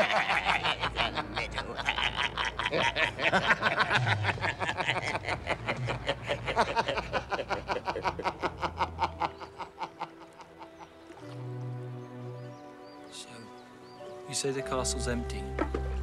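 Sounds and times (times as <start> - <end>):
man laughing gleefully: 0.0 - 10.8
soft music: 0.0 - 16.0.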